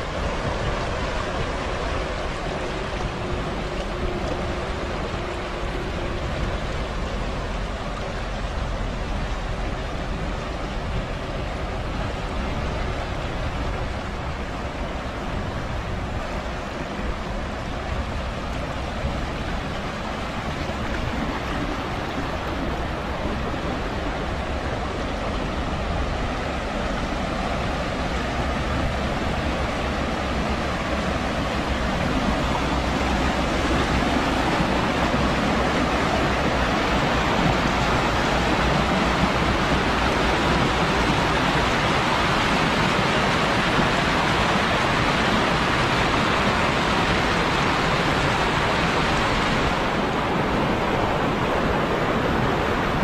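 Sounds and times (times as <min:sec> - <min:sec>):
river water rushing: 0:00.0 - 0:53.0.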